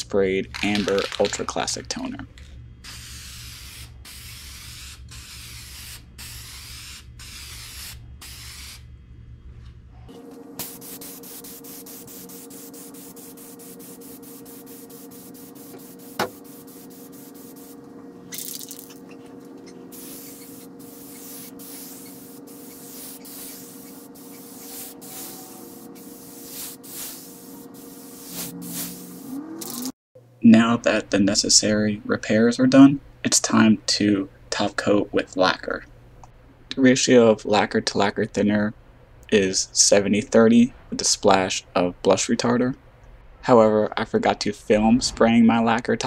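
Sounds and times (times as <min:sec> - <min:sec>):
steady hum: 0:00.0 - 0:46.0
spray gun hissing: 0:02.8 - 0:08.8, 0:10.6 - 0:19.0, 0:19.9 - 0:29.3.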